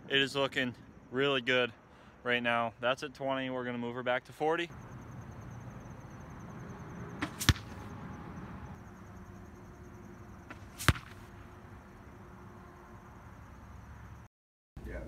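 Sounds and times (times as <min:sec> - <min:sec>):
arrows hitting target: 0:07.2 - 0:07.9, 0:10.5 - 0:11.3
bow shot crack: 0:07.2 - 0:07.9, 0:10.4 - 0:11.5.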